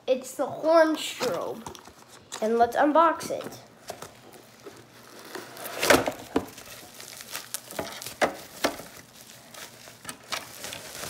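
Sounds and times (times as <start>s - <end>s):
cardboard and bubble wrap rustling: 0.8s - 11.0s
sharp crackles: 4.3s - 11.0s.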